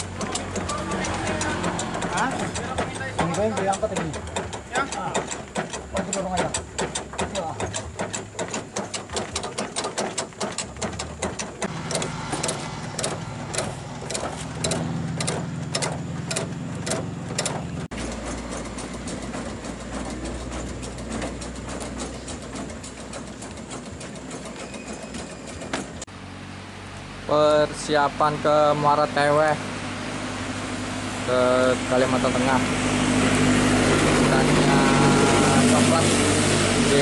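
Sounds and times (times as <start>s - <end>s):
hydraulic hand pump clicking: 0.0s - 26.1s
diesel engine humming: 0.0s - 37.0s.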